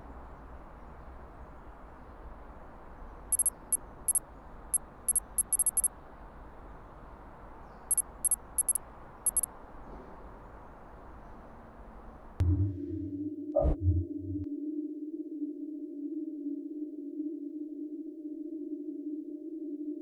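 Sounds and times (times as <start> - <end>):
high typing clicks: 3.3 - 4.2, 5.1 - 5.9, 7.9 - 9.5.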